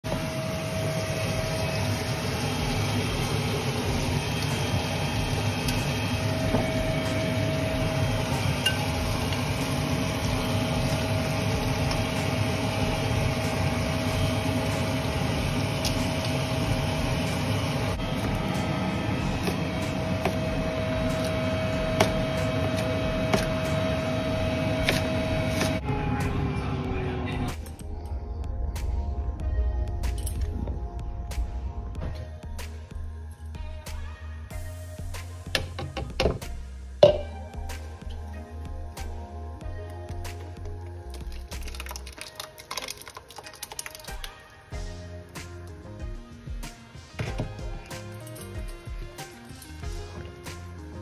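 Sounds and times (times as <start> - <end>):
machine hum: 0.0 - 42.3
thin constant whine: 0.1 - 31.9.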